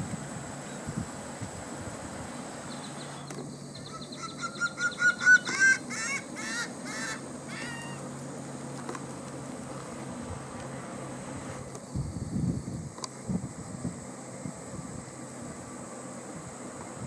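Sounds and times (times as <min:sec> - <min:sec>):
gull long call: 0:03.8 - 0:08.1.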